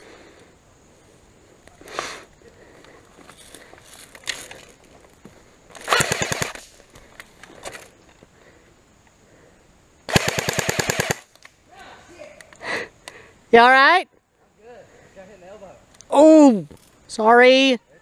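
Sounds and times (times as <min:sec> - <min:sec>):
airsoft rifle full-auto burst: 0:05.8 - 0:06.6, 0:10.1 - 0:11.3.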